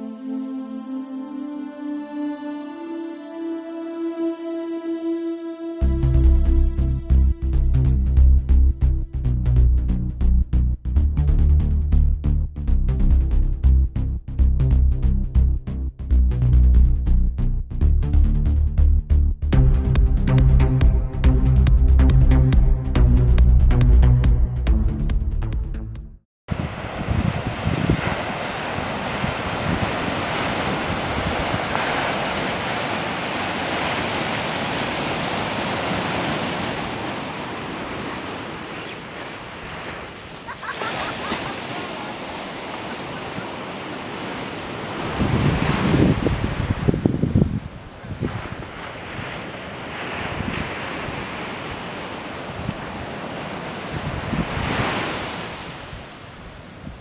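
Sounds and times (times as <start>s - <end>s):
wind buffeting microphone: 26.5s - 34.8s, 42.6s - 51.4s, 52.5s - 57.0s
waves breaking on beach: 26.5s - 57.0s.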